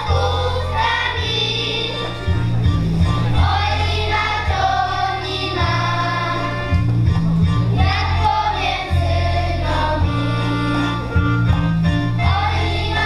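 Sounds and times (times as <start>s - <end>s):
children singing a folk song: 0.0s - 2.4s, 3.1s - 6.9s, 7.7s - 11.1s, 12.1s - 13.0s
instrumental accompaniment: 0.0s - 13.0s
steady bass beat: 2.3s - 12.7s.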